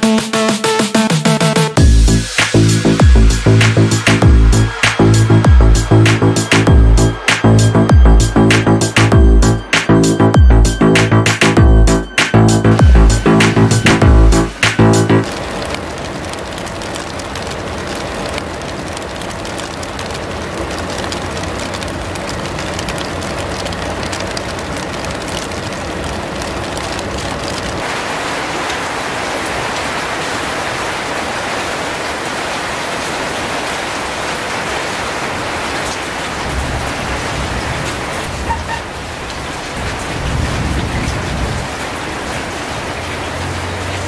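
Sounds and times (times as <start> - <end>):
heavy rain: 0.0 - 44.0.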